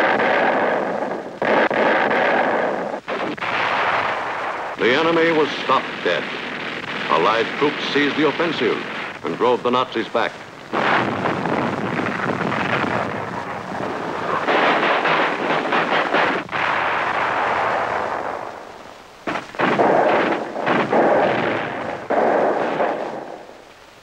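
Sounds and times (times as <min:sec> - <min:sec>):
gunfire: 0:00.0 - 0:09.6, 0:10.7 - 0:23.6
explosions: 0:00.0 - 0:24.0.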